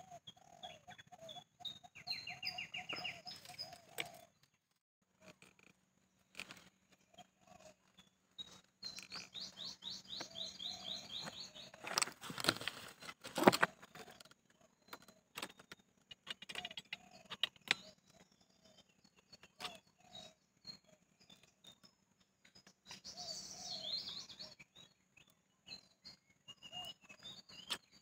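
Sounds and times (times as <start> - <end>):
small bird chirping: 0.0 - 28.0
handling rustle: 11.8 - 13.8.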